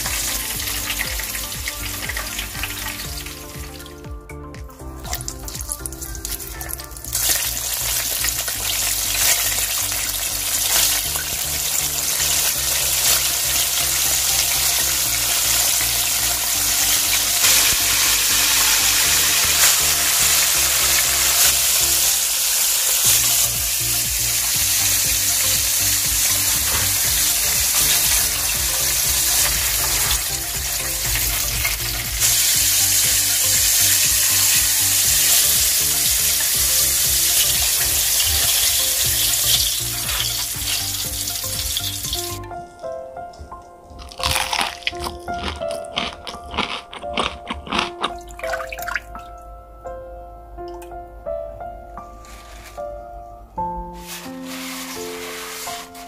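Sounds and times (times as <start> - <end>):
chicken deep-frying in oil: 0.0 - 4.1, 5.0 - 42.4, 54.0 - 56.0
background music: 0.0 - 56.0.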